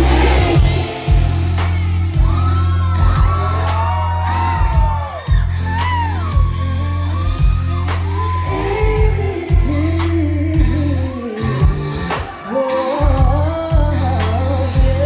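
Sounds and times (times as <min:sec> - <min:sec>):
woman singing into microphone: 0:00.0 - 0:03.3, 0:05.7 - 0:15.0
drum kit hits: 0:00.0 - 0:03.9
heavy bass: 0:00.0 - 0:15.0.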